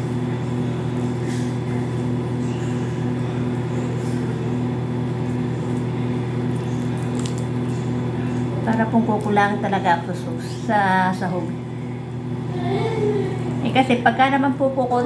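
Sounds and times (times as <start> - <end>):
appliance humming: 0.0 - 15.0.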